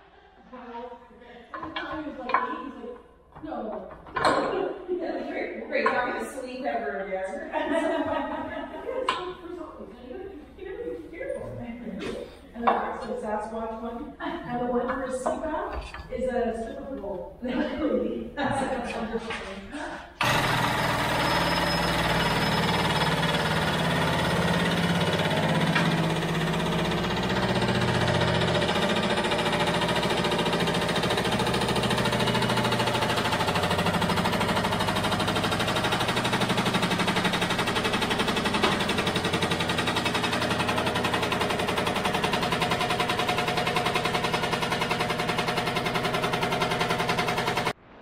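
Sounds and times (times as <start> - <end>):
shop machine rattling: 20.2 - 47.8.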